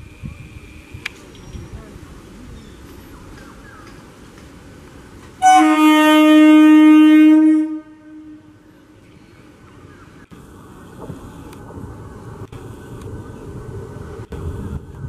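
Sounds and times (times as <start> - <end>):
low rumble of train rolling: 0.0 - 15.0
train horn blast: 5.4 - 8.6.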